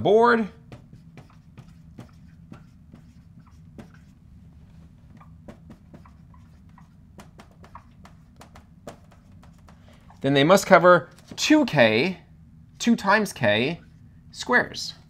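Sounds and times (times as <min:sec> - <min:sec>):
steady low hum: 0:00.0 - 0:15.0
marker writing on whiteboard: 0:00.4 - 0:10.3.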